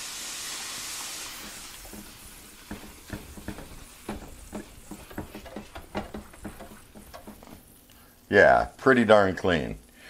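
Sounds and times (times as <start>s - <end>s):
water sizzling on hot griddle: 0.0s - 10.0s
towel rubbing wet surface: 1.3s - 7.6s.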